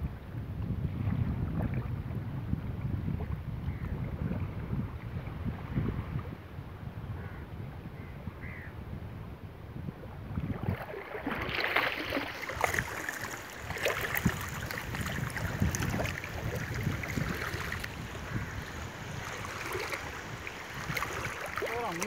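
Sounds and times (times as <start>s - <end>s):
legs wading through water: 10.3s - 22.0s.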